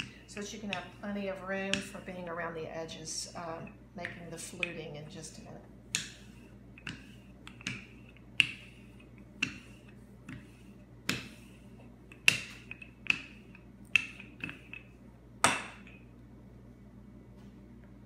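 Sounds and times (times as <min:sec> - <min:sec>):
wooden rolling pin clacking: 0:00.0 - 0:02.2, 0:06.0 - 0:11.5, 0:12.1 - 0:15.8.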